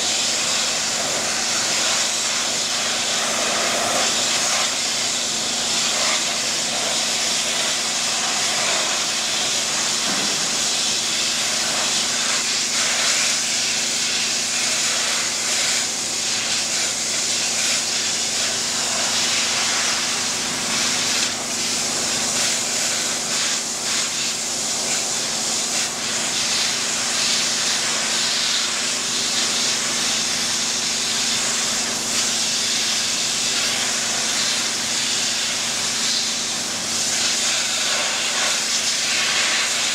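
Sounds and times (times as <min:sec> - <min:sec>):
pressure washer jet on metal grating: 0:00.0 - 0:39.9.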